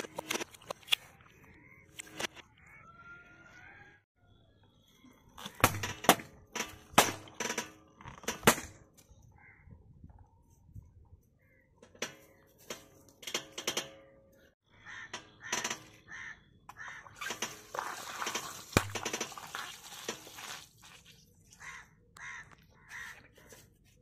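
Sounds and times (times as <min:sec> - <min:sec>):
crows cawing: 0:09.4 - 0:09.7, 0:14.7 - 0:17.2, 0:21.5 - 0:23.6
water balloon bursting: 0:17.2 - 0:21.1.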